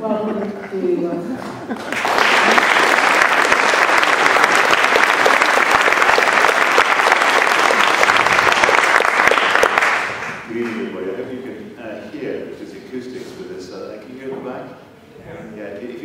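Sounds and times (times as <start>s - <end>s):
audience applauding: 1.7s - 10.9s.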